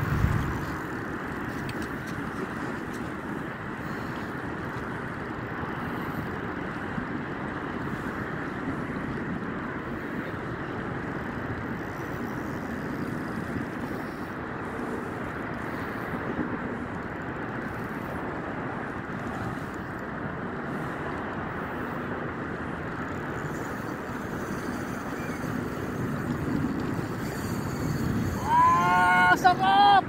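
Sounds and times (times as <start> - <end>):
sea noise: 0.0 - 30.0
wind: 0.0 - 30.0.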